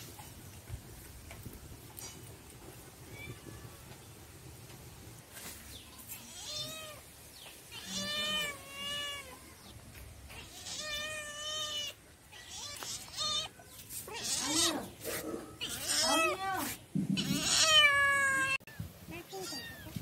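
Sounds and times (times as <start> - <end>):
cat meowing: 6.2 - 7.0, 7.7 - 9.6, 10.3 - 13.5, 15.6 - 16.6, 17.2 - 20.0.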